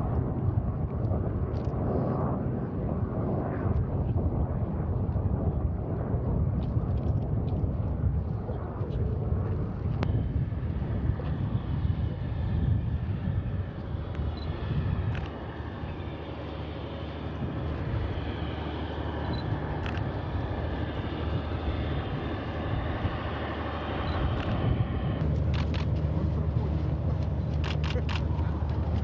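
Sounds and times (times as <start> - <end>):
diesel locomotive rumbling: 24.4 - 29.0.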